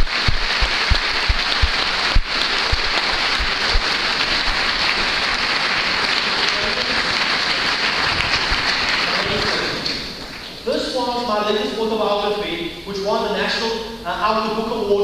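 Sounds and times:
dull low thumps: 0:00.0 - 0:03.9
crowd applauding: 0:00.0 - 0:10.8.

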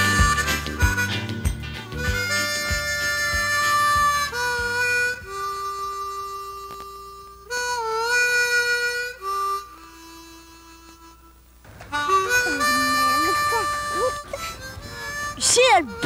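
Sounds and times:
bass and drum beat: 0:00.0 - 0:05.5
harmonica long notes: 0:00.0 - 0:16.0.

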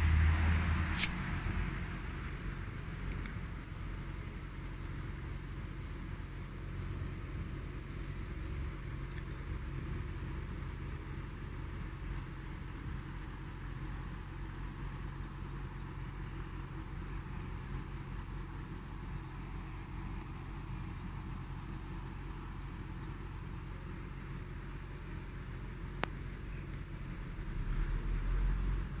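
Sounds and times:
sharp click: 0:00.9 - 0:01.2.

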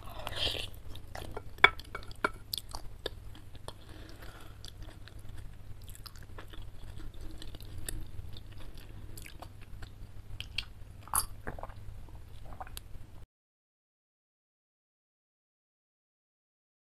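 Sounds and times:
steady low hum: 0:00.0 - 0:13.2
chewing and wet mouth sounds: 0:00.1 - 0:12.9.

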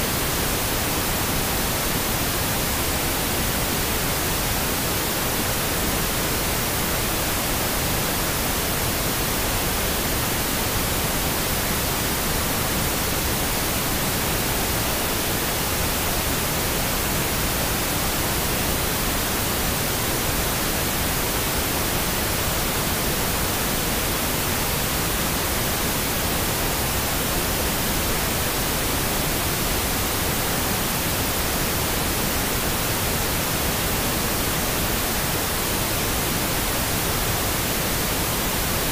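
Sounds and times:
pink noise hiss: 0:00.0 - 0:38.9.

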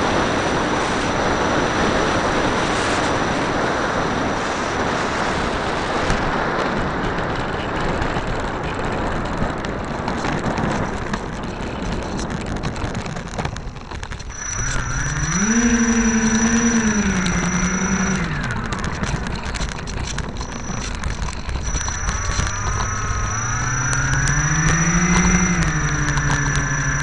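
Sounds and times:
rolling windy rumble: 0:00.0 - 0:27.0
model plane motors whining: 0:10.1 - 0:27.0.

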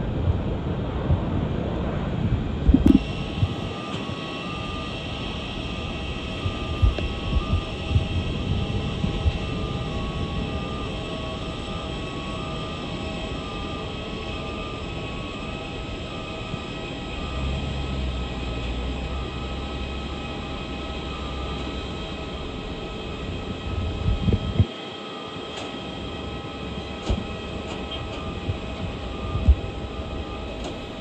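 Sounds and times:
deep rumble: 0:00.0 - 0:13.2, 0:16.2 - 0:24.7
mechanical drone with whining tones: 0:00.0 - 0:31.0.

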